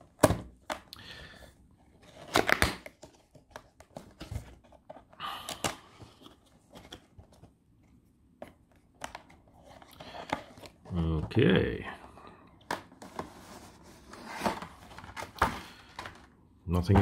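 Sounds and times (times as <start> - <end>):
cardboard rustling and scraping: 1.8 - 5.1, 12.9 - 16.3
cardboard tearing and clicking: 2.1 - 3.2.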